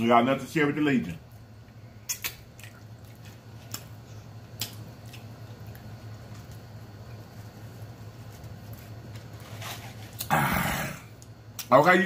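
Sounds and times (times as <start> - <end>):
low steady hum: 0.0 - 12.0
wet eating clicks and smacks: 1.6 - 7.3, 11.1 - 12.0.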